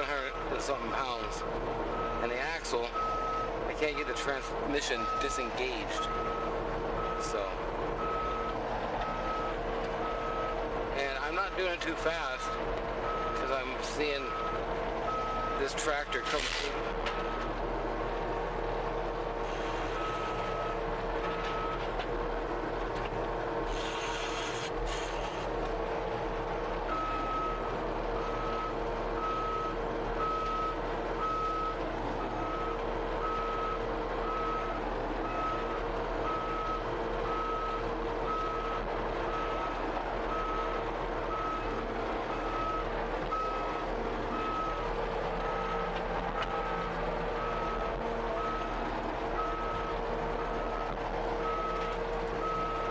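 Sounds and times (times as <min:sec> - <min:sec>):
skid steer loader running: 0:00.0 - 0:52.9
short hisses: 0:23.7 - 0:25.4.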